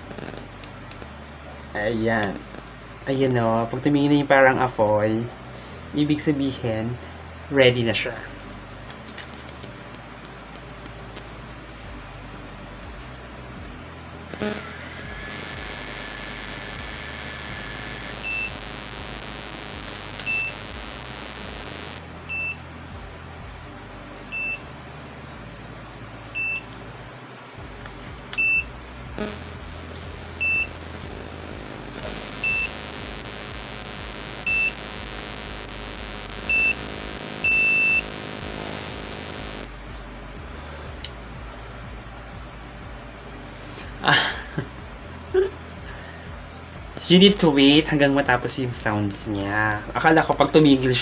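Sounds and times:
hair curler beeping: 14.4 - 22.0, 29.2 - 39.6.

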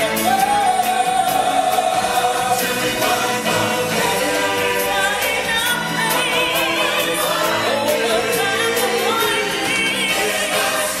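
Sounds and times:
choir singing over a band: 0.0 - 11.0.

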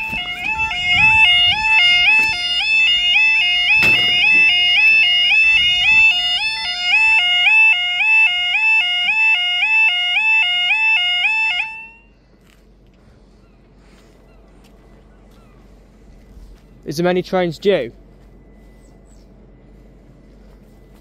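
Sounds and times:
level crossing two-tone alarm: 0.0 - 12.2.

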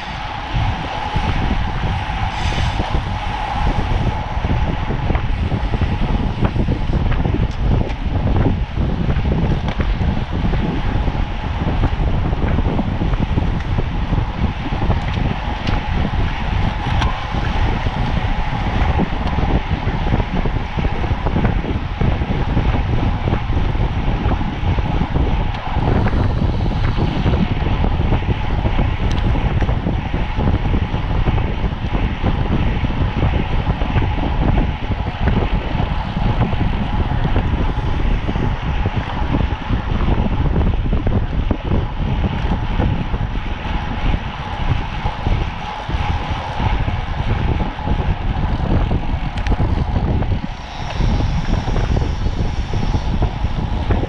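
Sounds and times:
steady hum: 0.0 - 54.0
wind buffeting microphone: 0.0 - 54.0.

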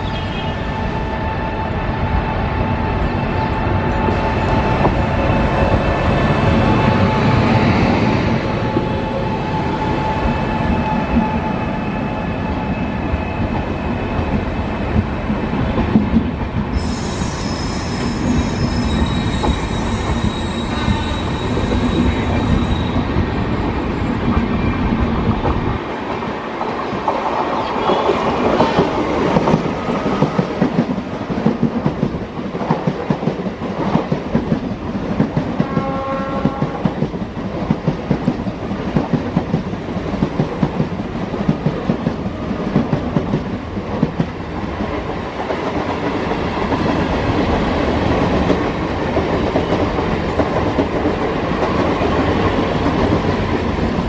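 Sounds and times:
train wheels squealing: 0.0 - 14.6, 16.7 - 23.2.

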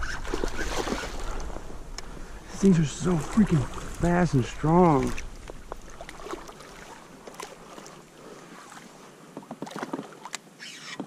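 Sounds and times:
fish splashing in water: 0.0 - 1.5, 3.1 - 8.9.

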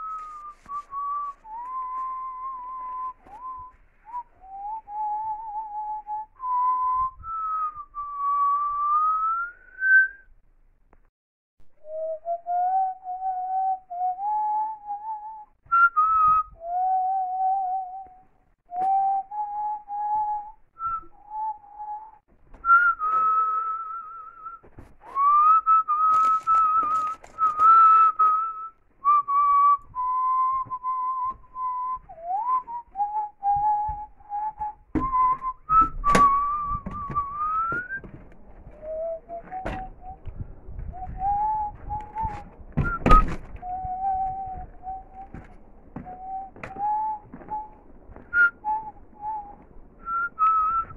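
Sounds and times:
person whistling a tune: 0.0 - 10.3, 11.8 - 38.1, 38.7 - 50.9
rustling and handling clicks: 26.1 - 27.7.

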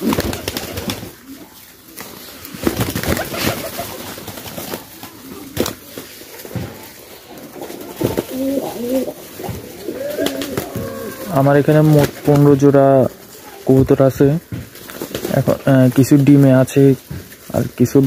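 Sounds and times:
pigeon wing flaps: 0.0 - 1.4, 2.0 - 11.3, 14.7 - 15.6
pigeons cooing: 0.0 - 15.6.

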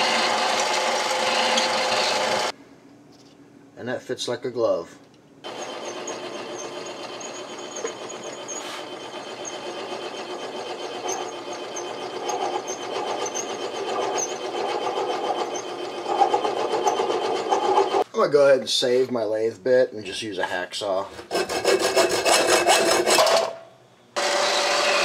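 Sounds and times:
lathe motor whine: 0.0 - 2.5, 5.5 - 18.0
lathe tool cutting: 0.0 - 2.5, 5.5 - 18.0.

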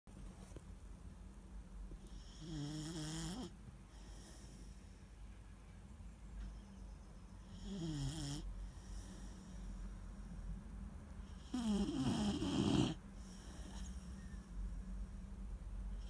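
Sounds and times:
puppy snoring: 2.0 - 4.8, 7.4 - 9.6, 11.2 - 14.4.

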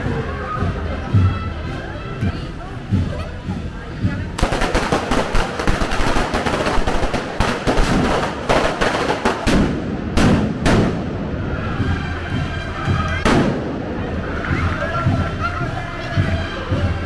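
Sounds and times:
firecrackers crackling: 4.3 - 11.4, 13.2 - 14.7
loud firecracker bangs: 4.4 - 11.4, 13.2 - 14.0.

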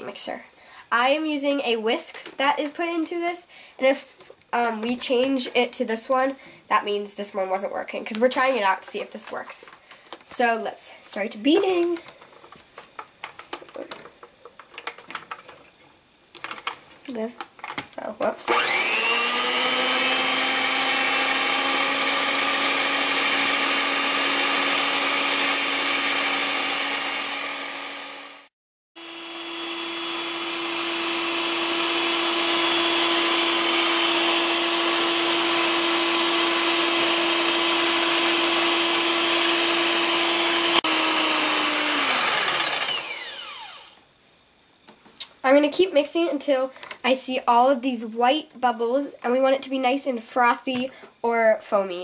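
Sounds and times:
electric hand mixer whining: 18.5 - 44.0.

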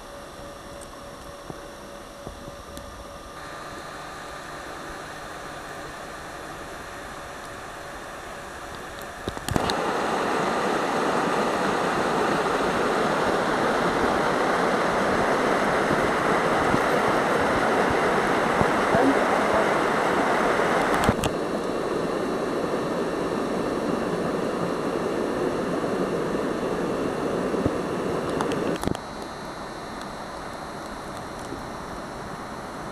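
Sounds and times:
click: 28.2 - 29.3.

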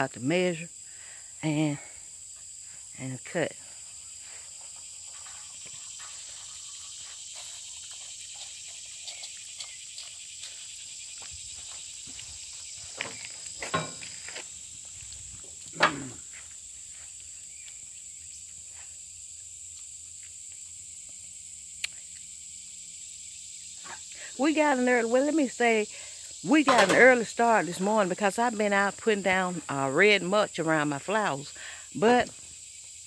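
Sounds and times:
high-pitched insect buzzing: 3.6 - 26.8.

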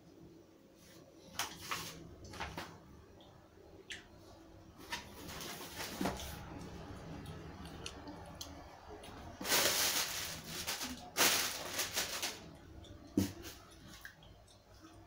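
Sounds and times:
plastic packing bags crinkling: 9.4 - 12.6.

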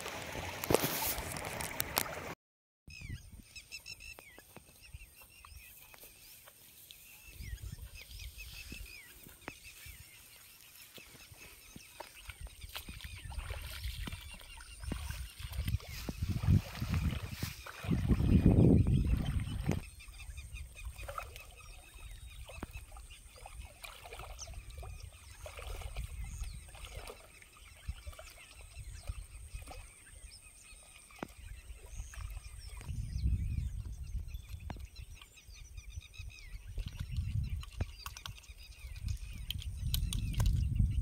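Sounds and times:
birds chirping: 2.9 - 41.0
water sloshing around legs: 8.0 - 32.9.

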